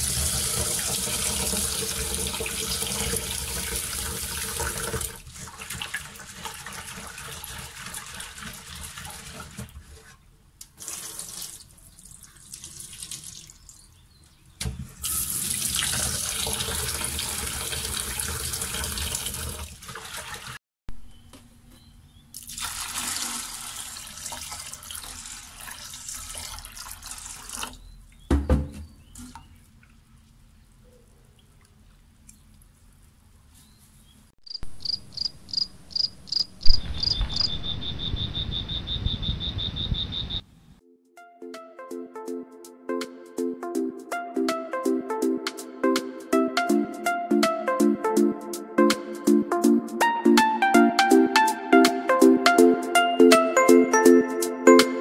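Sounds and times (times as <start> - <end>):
tap water running into steel bowl: 0.0 - 9.7, 15.0 - 20.6, 22.4 - 27.8
water poured into sink: 0.0 - 9.8, 10.8 - 13.6, 15.0 - 20.6, 22.4 - 27.8.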